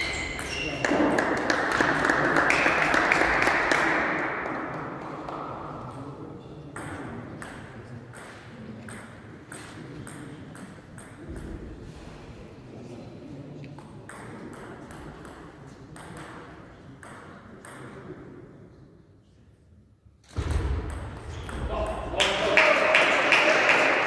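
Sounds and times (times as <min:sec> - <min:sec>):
echoing hall noise: 0:00.0 - 0:24.0
ping pong ball clicks and taps: 0:16.0 - 0:17.9.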